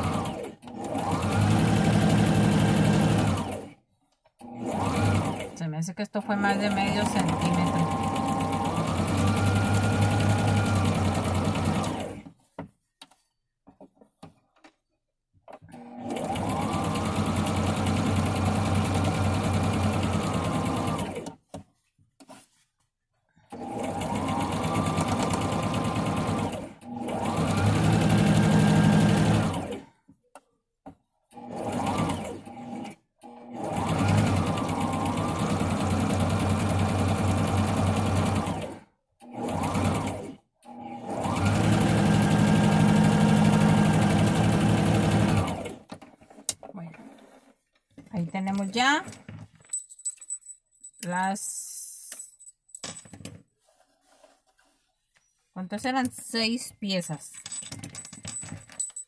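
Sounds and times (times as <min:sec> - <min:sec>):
sewing machine stitching: 0:00.0 - 0:03.8, 0:04.4 - 0:12.4, 0:15.6 - 0:21.4, 0:23.5 - 0:30.0, 0:31.3 - 0:47.7.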